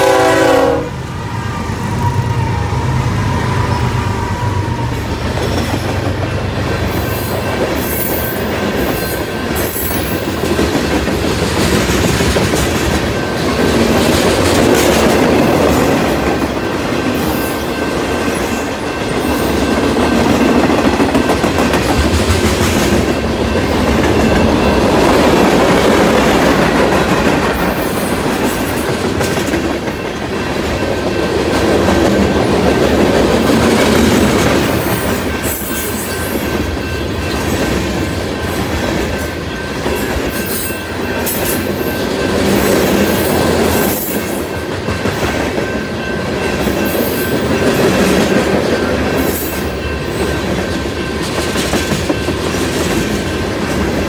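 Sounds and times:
train horn: 0.0s - 5.2s
diesel locomotives rumbling: 0.0s - 54.0s
freight cars rolling on rails: 0.0s - 54.0s
clickety-clack over rail joints: 4.2s - 54.0s.

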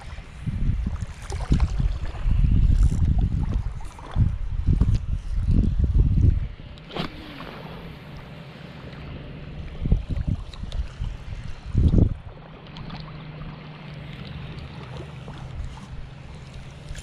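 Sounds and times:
wind noise on microphone: 0.0s - 8.0s, 9.6s - 12.4s.

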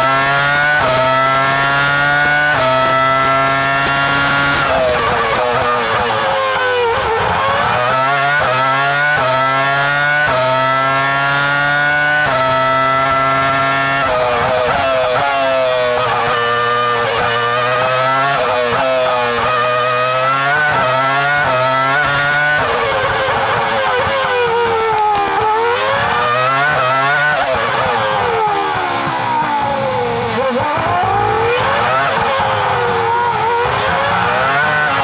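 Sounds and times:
racing car downshifting: 0.0s - 8.5s
racing car engine at full throttle: 0.0s - 35.0s.

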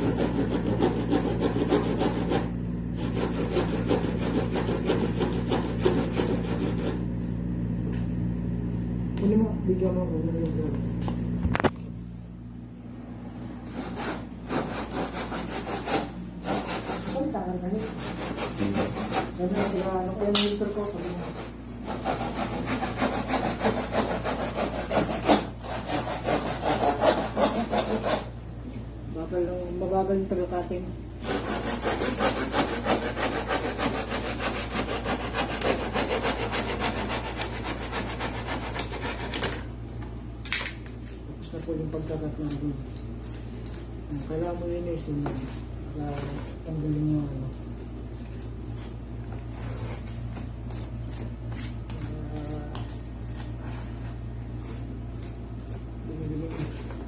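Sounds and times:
hand saw cutting panel: 21.9s - 28.3s, 31.2s - 39.6s.

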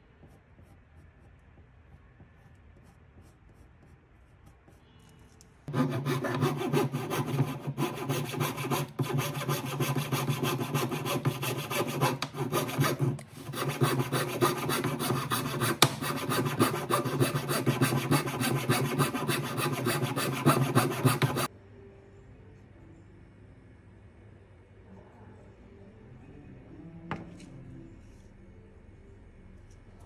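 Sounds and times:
hand saw cutting wood: 5.7s - 21.5s.

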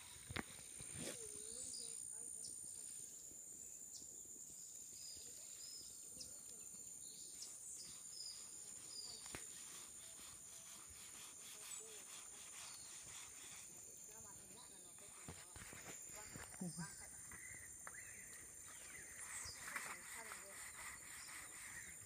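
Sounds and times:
bird chirps: 4.7s - 10.3s, 16.1s - 22.0s.

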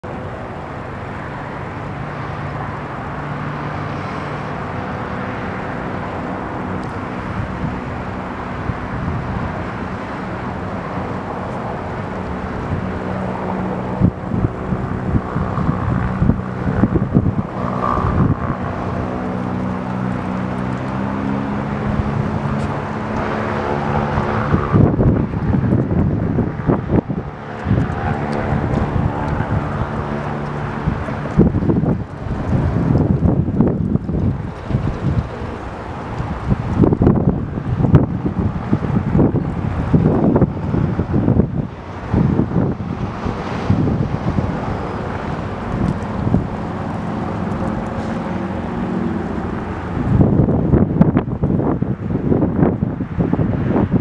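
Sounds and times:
propeller engines droning: 0.0s - 54.0s
wind buffeting microphone: 0.0s - 54.0s.

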